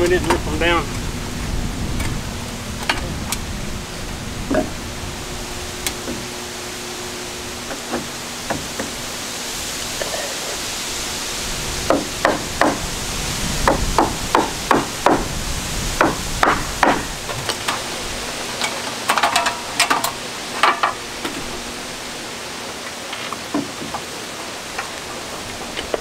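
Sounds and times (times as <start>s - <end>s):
hammer driving nails into wood: 11.9s - 12.8s, 16.0s - 17.1s.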